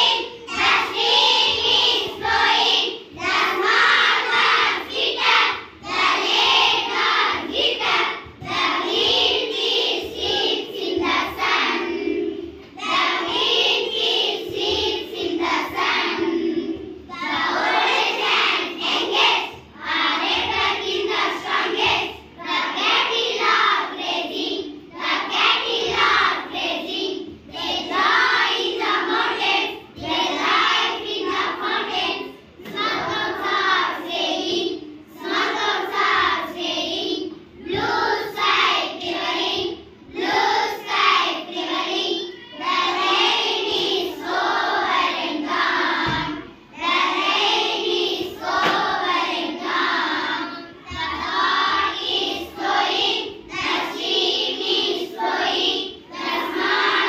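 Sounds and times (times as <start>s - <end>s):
children singing in unison: 0.0s - 57.0s.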